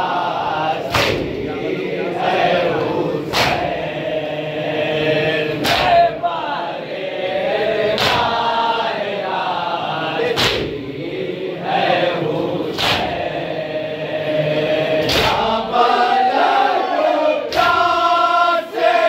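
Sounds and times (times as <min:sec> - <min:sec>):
men chanting together: 0:00.0 - 0:19.0
unison chest slaps: 0:00.9 - 0:01.4, 0:03.2 - 0:03.8, 0:05.6 - 0:06.1, 0:07.9 - 0:08.4, 0:10.2 - 0:10.8, 0:12.7 - 0:13.2, 0:15.0 - 0:15.6, 0:17.5 - 0:17.8.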